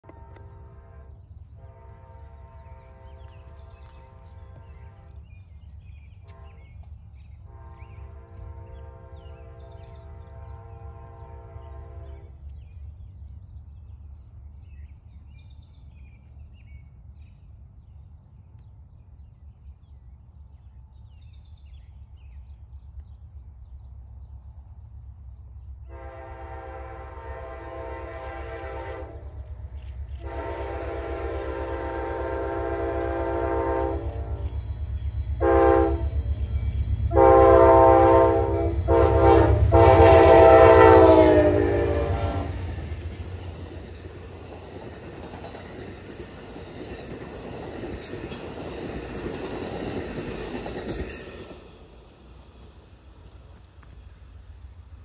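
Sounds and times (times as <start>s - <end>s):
locomotive air horn blasts: 0.0s - 5.3s, 7.5s - 12.4s, 25.9s - 29.4s, 30.2s - 34.6s, 35.4s - 36.3s, 37.1s - 42.7s
train rumbling: 0.0s - 55.0s.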